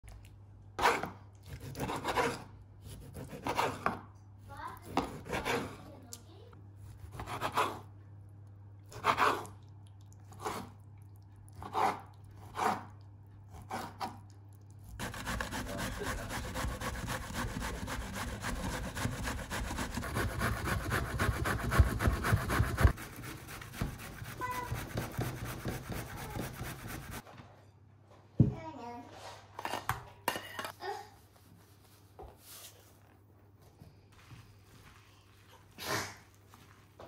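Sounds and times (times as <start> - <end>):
grater rasping: 11.6 - 14.3, 14.9 - 27.2.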